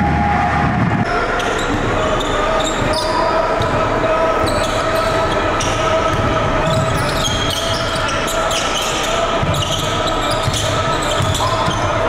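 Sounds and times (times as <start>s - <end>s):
spectator chatter: 0.0s - 12.0s
basketball bouncing on gym floor: 9.4s - 11.9s.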